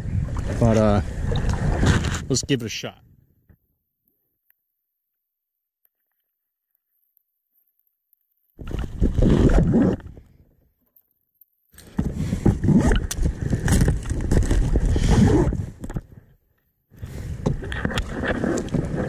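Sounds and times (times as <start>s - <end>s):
kayak rubbing and bumping: 0.4s - 2.3s, 8.6s - 10.2s, 11.9s - 16.0s, 17.3s - 19.0s.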